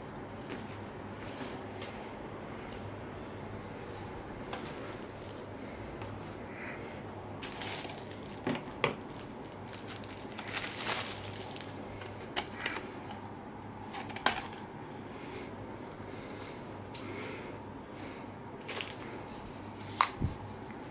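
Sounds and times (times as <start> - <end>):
low steady hum: 0.0 - 20.9
plastic packaging crinkling: 7.4 - 12.3, 18.6 - 19.2.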